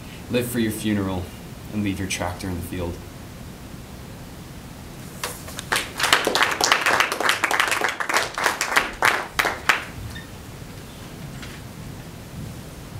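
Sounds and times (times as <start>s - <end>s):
audience applauding: 5.2s - 10.0s.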